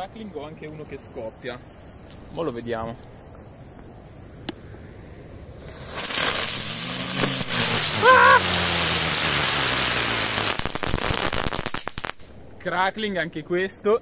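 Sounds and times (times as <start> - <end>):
hiss of spraying sparks: 0.8 - 4.1, 4.9 - 12.3.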